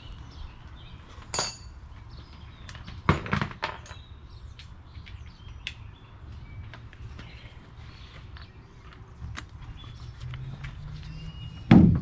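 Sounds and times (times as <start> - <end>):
metallic clinks of hand tools: 1.3 - 1.8.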